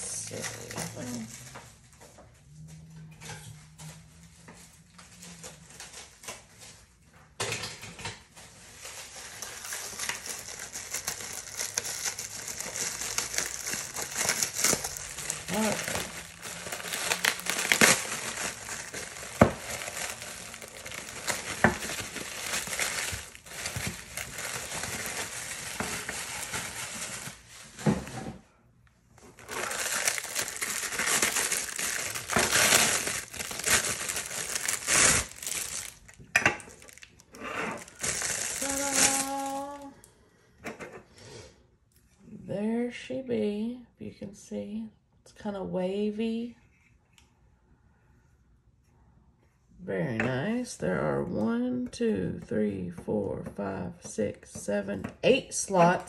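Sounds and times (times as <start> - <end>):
bubble wrap crinkling: 0.0 - 1.8, 8.4 - 28.2, 29.2 - 40.0.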